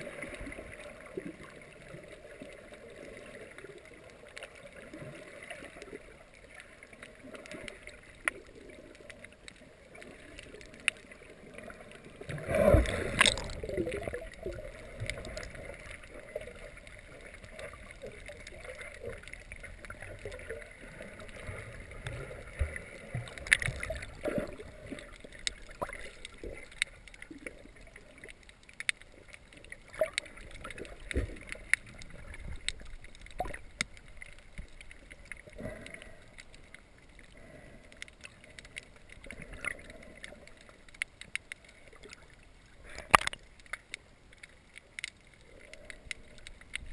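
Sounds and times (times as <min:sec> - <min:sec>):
muffled underwater water noise: 0:00.0 - 0:46.9
short clicks and crackles: 0:05.4 - 0:46.9.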